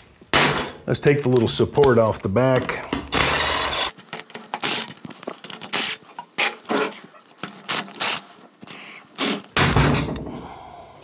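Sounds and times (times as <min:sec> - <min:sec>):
impact wrench running: 0:03.0 - 0:05.0.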